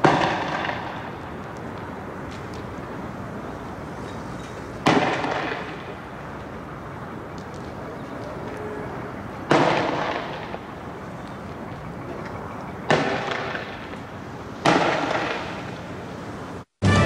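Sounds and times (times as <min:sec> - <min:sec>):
sharp explosive blasts: 0:14.6 - 0:15.7.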